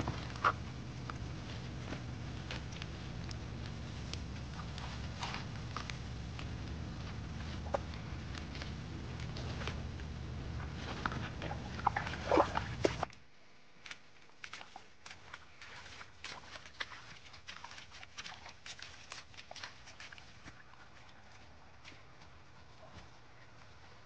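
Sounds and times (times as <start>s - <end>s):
footsteps on wet ground: 0.0s - 13.1s, 13.8s - 24.0s
low rumble: 0.0s - 13.1s
rain drips: 0.0s - 13.1s.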